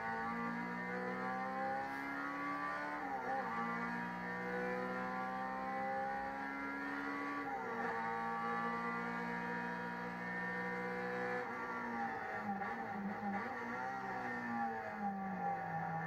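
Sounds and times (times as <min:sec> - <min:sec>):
race car engine at full throttle: 0:00.0 - 0:16.0.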